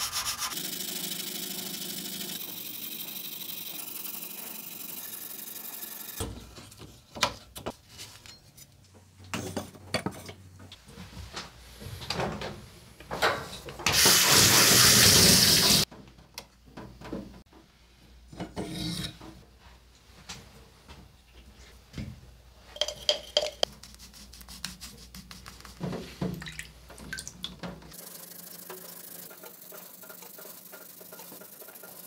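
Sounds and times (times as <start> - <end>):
cloth rubbing a knife: 23.7 - 25.8.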